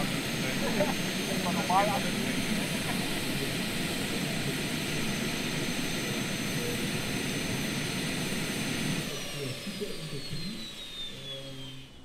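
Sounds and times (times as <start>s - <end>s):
model helicopter turbine whine: 0.0s - 12.0s.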